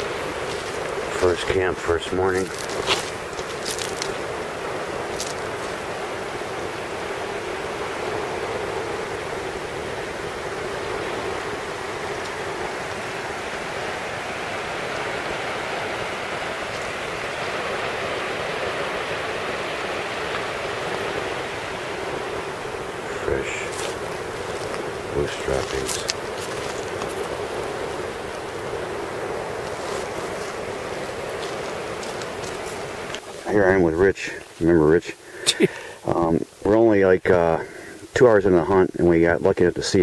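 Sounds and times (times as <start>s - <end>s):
river water rushing: 0.0s - 40.0s.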